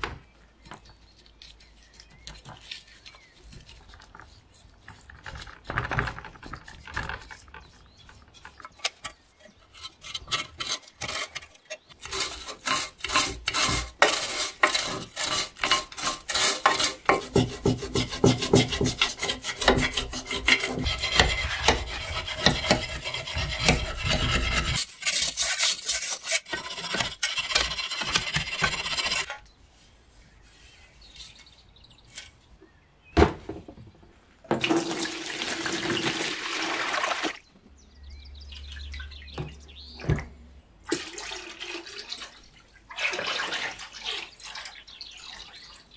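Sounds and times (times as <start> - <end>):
brush scrubbing metal: 1.4 - 29.3.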